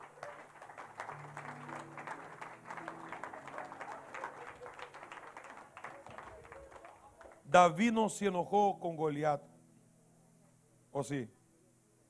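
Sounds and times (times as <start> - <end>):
congregation clapping: 0.0 - 8.0
soft music with held chords: 1.0 - 4.1, 7.6 - 12.0.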